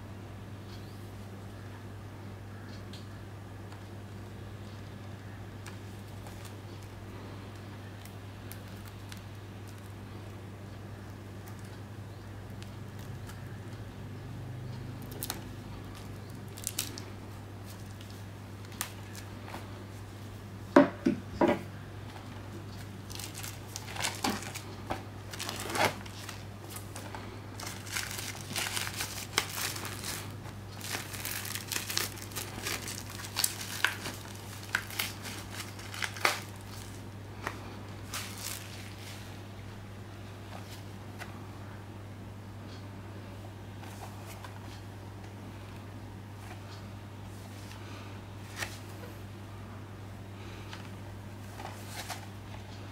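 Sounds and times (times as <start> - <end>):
plastic film crinkling: 5.6 - 10.4, 15.0 - 19.7, 22.1 - 39.4, 51.4 - 52.3.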